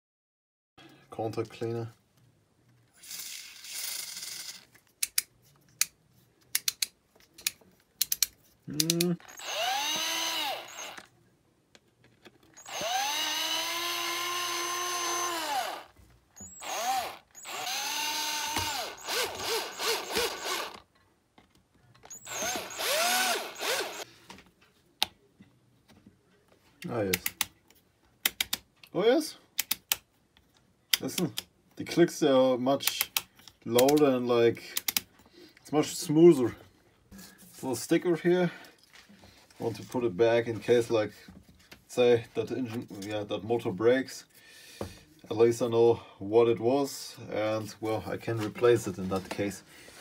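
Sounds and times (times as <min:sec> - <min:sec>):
small electric motor whirring: 0:03.0 - 0:04.7, 0:09.2 - 0:11.1, 0:12.6 - 0:20.8, 0:22.1 - 0:24.1
sharp clicks: 0:28.2 - 0:28.6, 0:29.6 - 0:30.1, 0:34.8 - 0:35.1.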